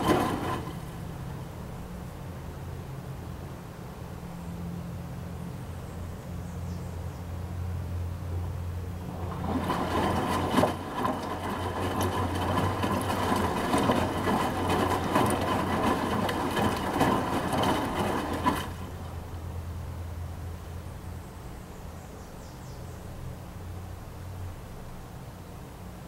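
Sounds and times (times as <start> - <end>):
washing machine drum sloshing: 0.0 - 1.4, 8.9 - 19.6.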